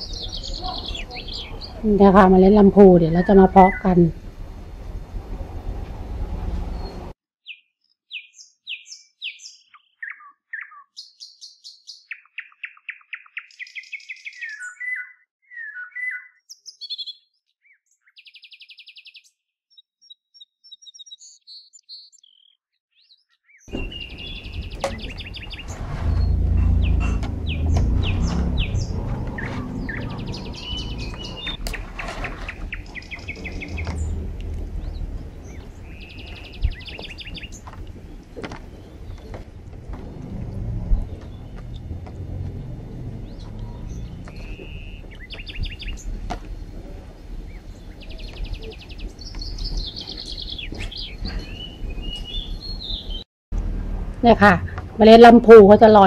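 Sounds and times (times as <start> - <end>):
small birds chirping: 0.0 - 4.2, 6.6 - 53.2
steady low rumble: 0.0 - 7.1, 23.8 - 49.9.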